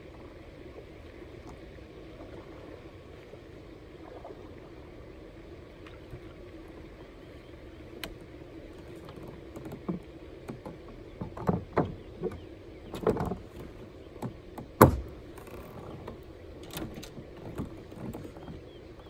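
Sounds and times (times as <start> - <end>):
faint steady hum: 0.0 - 19.0
knocks and clunks on plastic kayak: 7.9 - 19.0.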